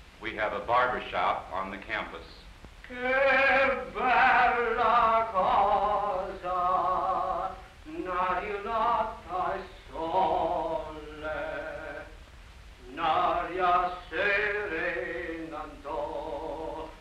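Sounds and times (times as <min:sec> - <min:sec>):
man singing long held notes: 0:02.9 - 0:12.2, 0:12.8 - 0:17.0.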